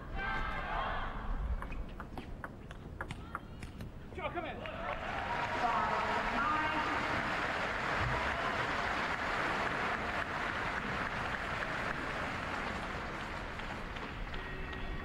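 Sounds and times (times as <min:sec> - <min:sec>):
arena crowd cheering and clapping: 0:04.4 - 0:15.0.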